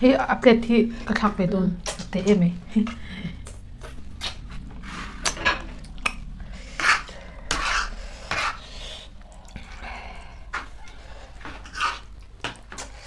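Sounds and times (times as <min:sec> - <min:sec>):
slurping noodles: 0:11.5 - 0:13.0.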